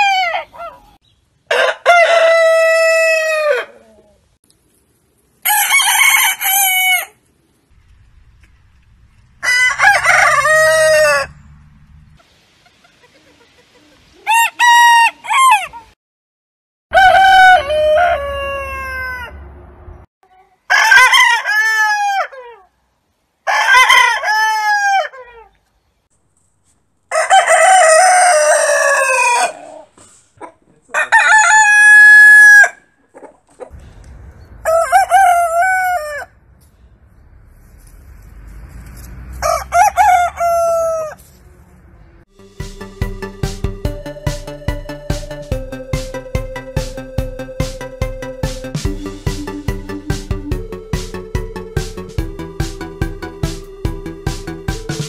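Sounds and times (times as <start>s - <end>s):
roosters crowing: 0.0s - 4.2s, 5.4s - 7.2s, 9.1s - 12.2s, 14.2s - 15.9s, 16.9s - 19.5s, 20.7s - 22.7s, 23.4s - 25.5s, 27.1s - 30.0s, 30.9s - 32.9s, 34.6s - 36.4s, 38.8s - 41.8s.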